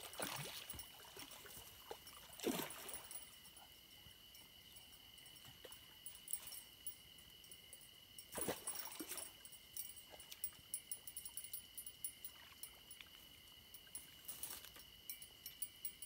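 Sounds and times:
night insects chirring: 0.0s - 16.0s
rustles and knocks in dry reeds: 14.2s - 14.8s.

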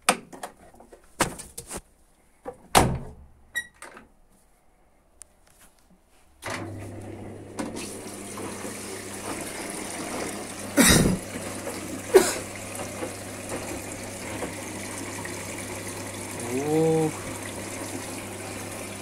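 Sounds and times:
water rushing into washing machine: 6.4s - 19.0s.

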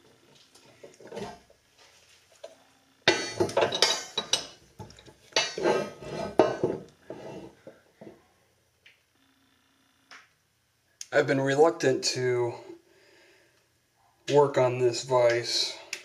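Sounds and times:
heavy vise clanking and scraping on metal: 5.4s - 7.6s.

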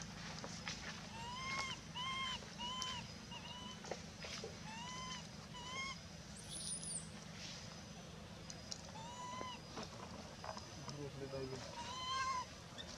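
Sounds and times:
infant monkey coo calls: 1.1s - 7.0s, 8.8s - 9.8s, 11.5s - 12.9s.

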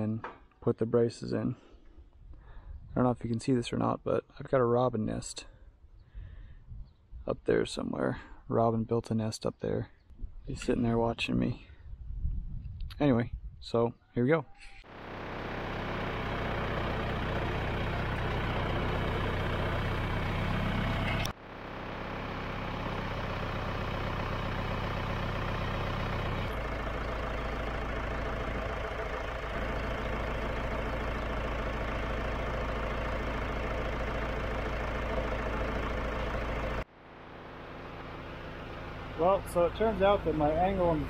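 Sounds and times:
tractor diesel engine running: 14.8s - 41.0s.

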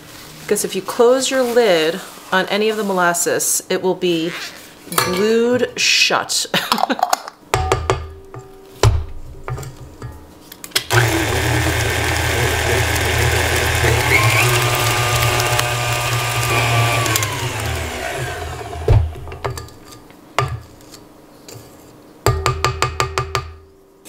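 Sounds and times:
stand mixer motor running: 10.9s - 19.4s.

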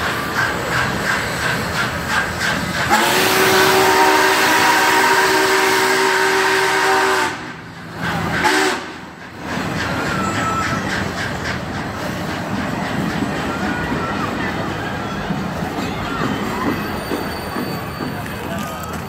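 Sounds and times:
train cars rumbling and clattering: 0.0s - 19.0s
steam whistle blasts: 2.8s - 7.6s, 8.3s - 9.1s.

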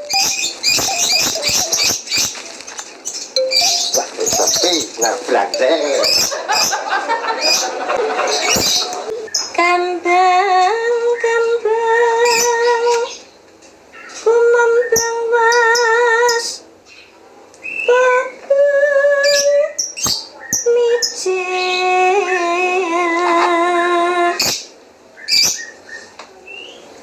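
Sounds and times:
woman singing unaccompanied: 9.5s - 13.2s, 14.1s - 16.6s, 17.8s - 19.8s, 20.6s - 24.4s.

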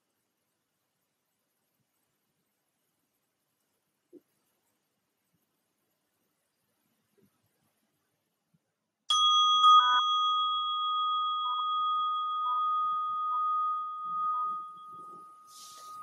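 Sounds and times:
meditation bell ringing: 9.1s - 16.0s.

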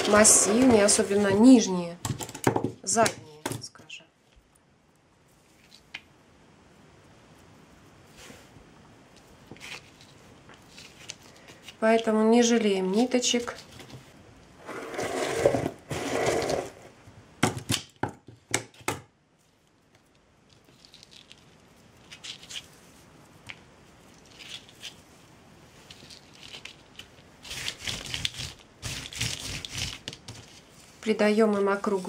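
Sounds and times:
twine rustling and crinkling: 7.3s - 14.2s, 19.4s - 32.0s.

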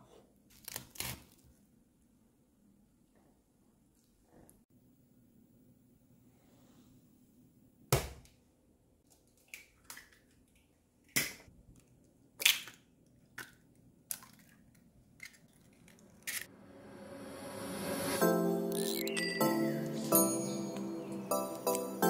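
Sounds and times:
music: 17.0s - 22.0s.

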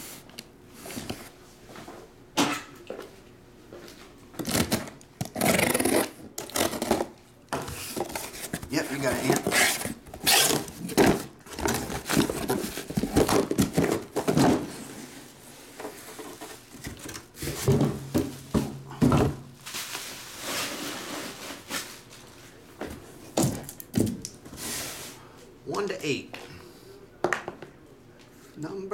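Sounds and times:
plastic wrap and cardboard rustling: 4.4s - 22.6s.

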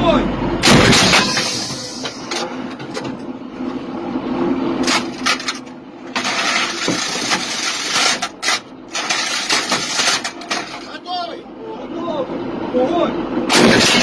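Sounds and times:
mechanical hum of machinery: 0.0s - 14.0s
metallic clanks and knocks: 4.8s - 10.9s.

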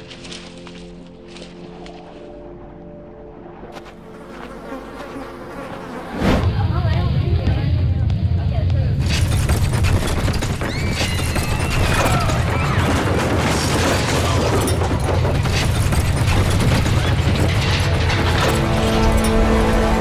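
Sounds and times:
deep earthquake rumble: 6.4s - 18.8s
debris crumbling and crashing: 9.0s - 20.0s.

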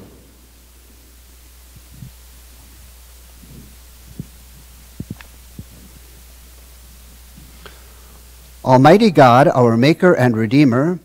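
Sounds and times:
soft low thumps: 0.0s - 7.6s
steady low hum: 0.0s - 11.0s.

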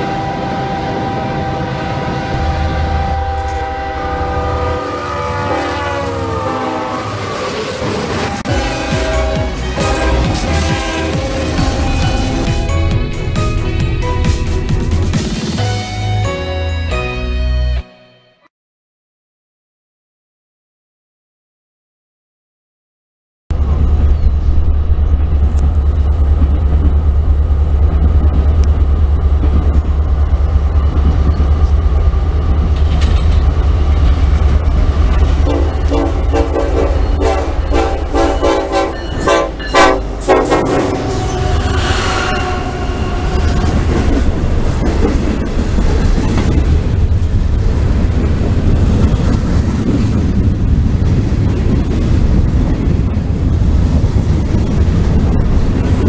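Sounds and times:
train horn blasts: 0.0s - 12.9s, 35.4s - 44.3s
locomotive engine rumble: 0.0s - 16.3s, 23.5s - 56.0s
wheels squealing on rail: 4.1s - 12.8s, 35.3s - 46.6s
train wheels clattering: 25.4s - 56.0s.

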